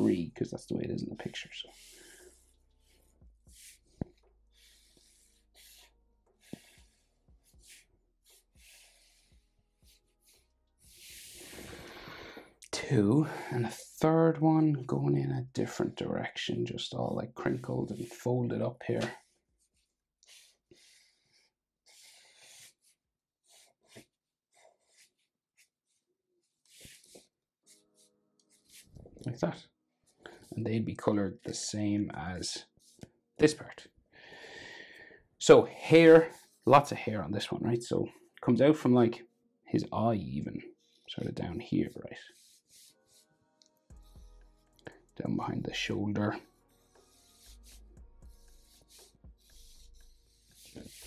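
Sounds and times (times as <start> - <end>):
marker scratching on paper: 1.2 - 11.7, 17.4 - 18.2, 18.9 - 28.9, 35.8 - 36.6, 42.3 - 43.3, 46.3 - 51.0.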